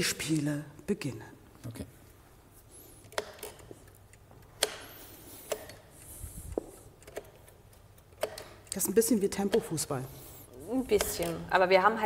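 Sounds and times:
chess clock buttons clicking: 0:03.0 - 0:10.0, 0:10.8 - 0:11.6.

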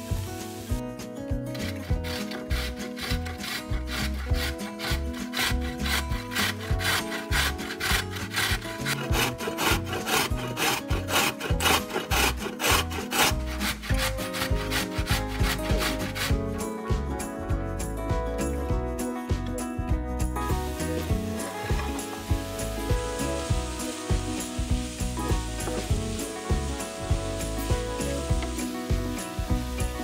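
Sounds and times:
background music: 0:00.0 - 0:30.0
vegetables scraped on cutting board: 0:01.6 - 0:16.3.

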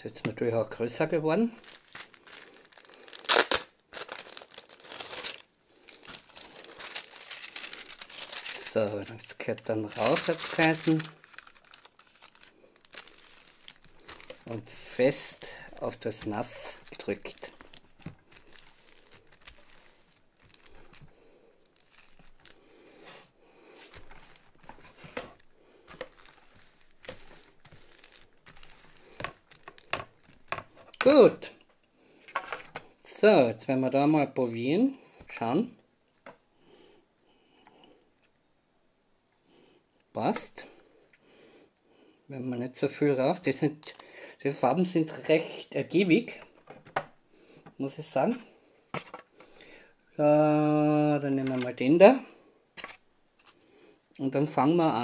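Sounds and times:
paper crinkling and rustling: 0:01.5 - 0:31.3, 0:48.3 - 0:49.6, 0:52.8 - 0:53.6.

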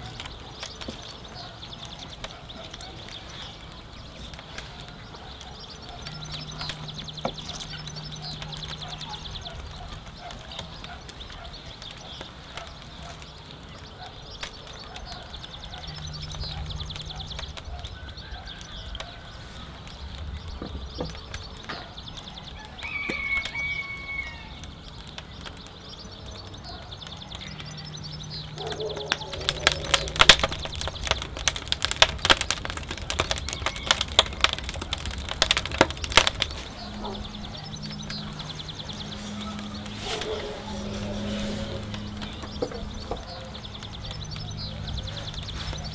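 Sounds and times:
sharp clicks and taps: 0:24.6 - 0:39.1.

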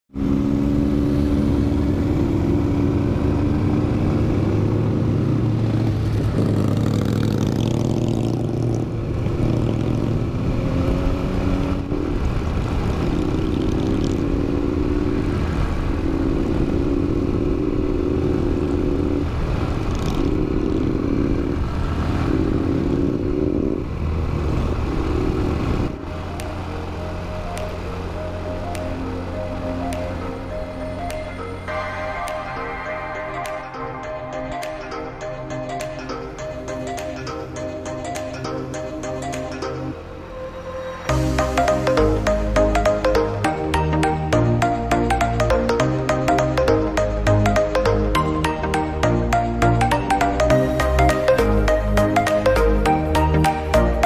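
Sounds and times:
motorbike engine running: 0:00.6 - 0:26.9
music: 0:26.3 - 0:54.0.

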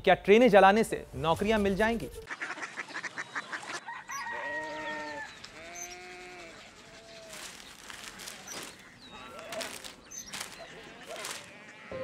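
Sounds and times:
rooster crowing: 0:03.8 - 0:05.4.

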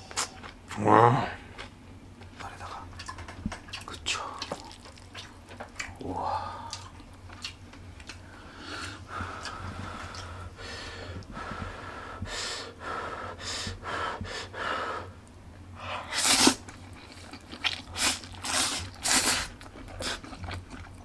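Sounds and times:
noodle slurping: 0:16.1 - 0:20.2.

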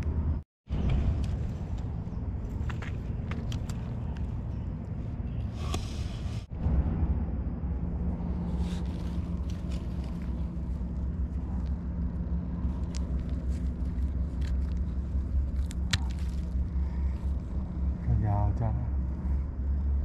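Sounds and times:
steady low rumble: 0:00.0 - 0:20.0
fingers scraping in soil and leaves: 0:08.2 - 0:17.9.

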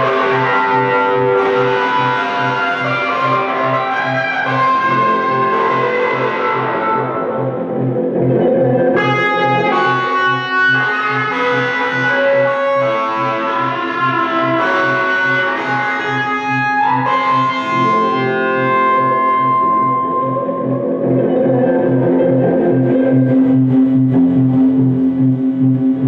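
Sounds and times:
electric guitar with effects: 0:00.0 - 0:26.0.

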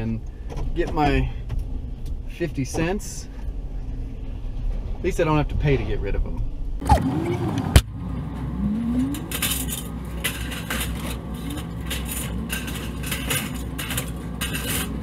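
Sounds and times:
metal gutters clanking and scraping: 0:08.8 - 0:15.0.

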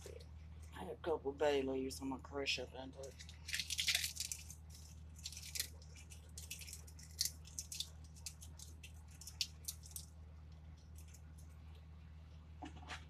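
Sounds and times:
steady low hum: 0:00.0 - 0:13.0
dry leaves crackling: 0:03.1 - 0:10.0.

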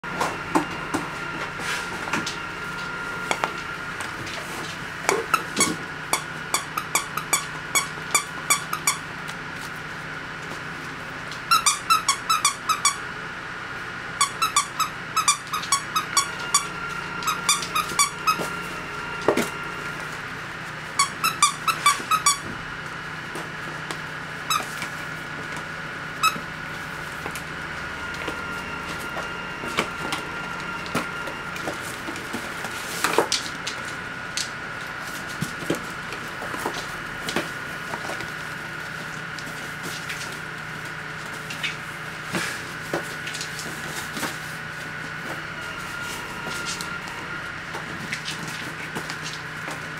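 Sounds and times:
squeaky dog toy squeaking: 0:11.5 - 0:13.0, 0:14.2 - 0:18.4, 0:21.0 - 0:22.4
faint high hum: 0:14.2 - 0:22.5.

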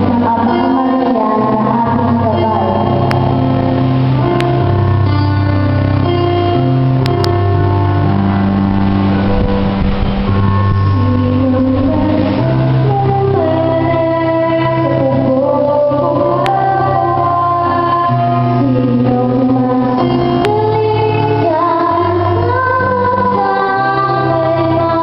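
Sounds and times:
girls singing a hymn: 0:00.0 - 0:03.6, 0:10.8 - 0:25.0
instrumental accompaniment: 0:00.0 - 0:25.0.

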